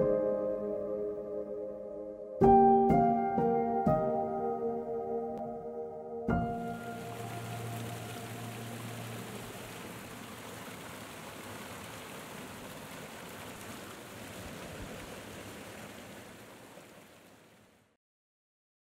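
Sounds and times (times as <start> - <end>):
fountain water splashing: 6.5 - 18.0.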